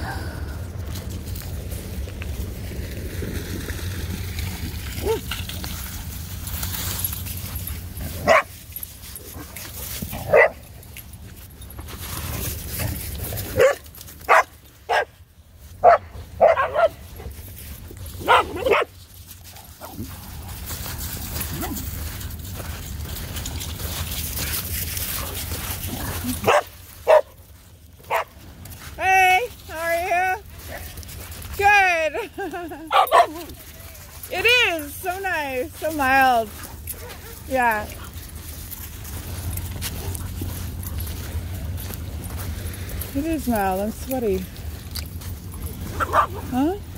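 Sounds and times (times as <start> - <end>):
low rumble: 0.0 - 8.1
dog barking: 8.2 - 8.5, 10.3 - 10.6, 13.6 - 15.1, 15.8 - 17.0, 18.2 - 18.9, 26.4 - 27.3, 28.1 - 28.3, 46.0 - 46.4.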